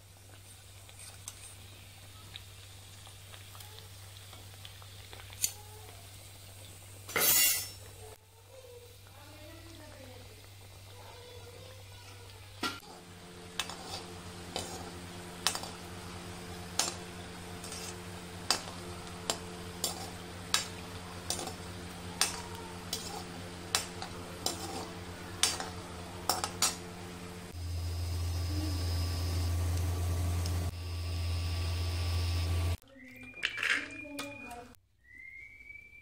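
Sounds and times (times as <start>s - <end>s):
faint oil sizzle: 0.0s - 32.8s
metal spatula scraping a pan: 12.8s - 15.8s, 16.8s - 26.8s
steady low hum: 12.8s - 32.8s.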